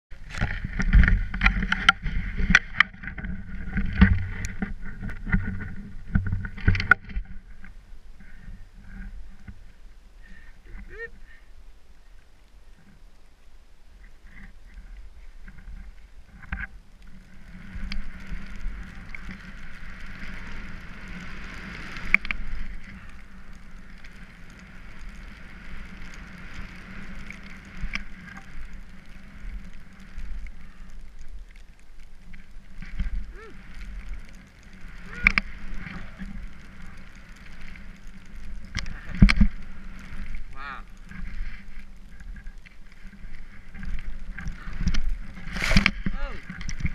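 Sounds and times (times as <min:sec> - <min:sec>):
snow and wind rushing: 0:17.2 - 0:30.9, 0:32.6 - 0:46.9.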